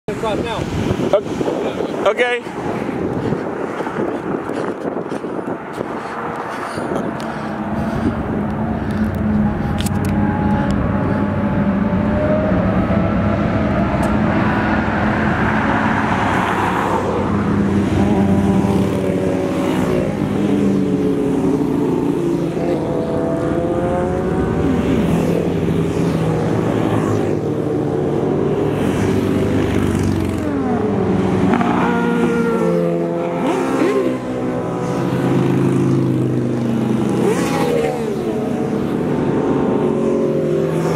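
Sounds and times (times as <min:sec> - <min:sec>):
motorcycles riding past revving: 0:00.5 - 0:40.9.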